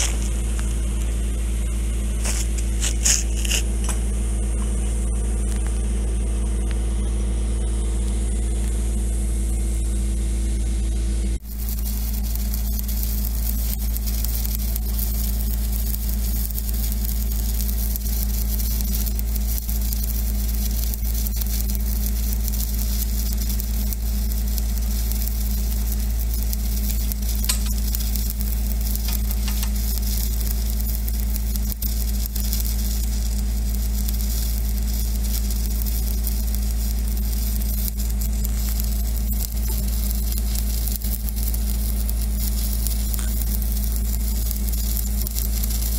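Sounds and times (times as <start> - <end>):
low hum: 0.0 - 45.9
welding arc crackling sizzle: 0.0 - 45.9.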